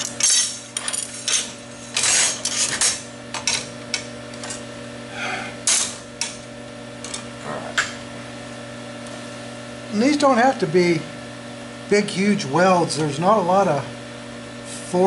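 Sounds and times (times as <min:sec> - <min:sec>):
metal parts clanking on steel table: 0:00.0 - 0:03.7
steady low hum: 0:00.0 - 0:15.0.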